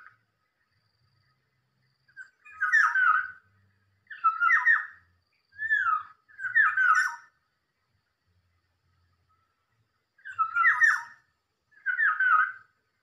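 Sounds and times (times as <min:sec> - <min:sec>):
bird whistling song: 0:02.1 - 0:07.4, 0:10.2 - 0:12.8.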